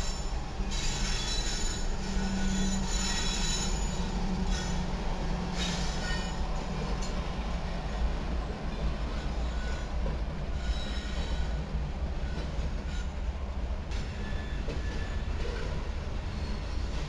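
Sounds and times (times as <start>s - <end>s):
faint wheel squeals: 0.0s - 4.9s, 9.1s - 11.6s, 14.1s - 17.0s
diesel locomotives rumbling: 0.0s - 17.0s.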